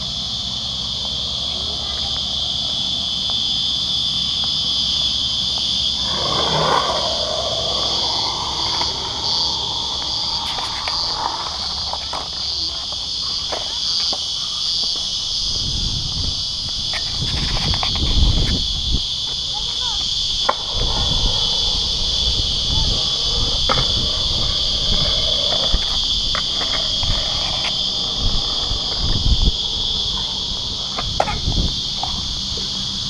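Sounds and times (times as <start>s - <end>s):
cicadas chorus: 0.0s - 33.0s
low rumble: 5.9s - 12.4s.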